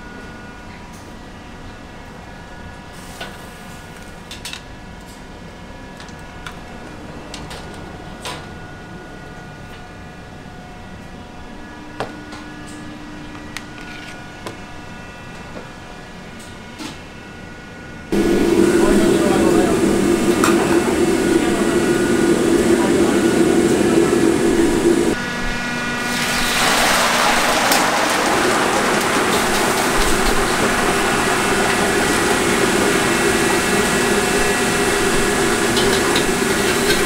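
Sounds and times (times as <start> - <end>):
kitchen hum: 18.1 - 37.0.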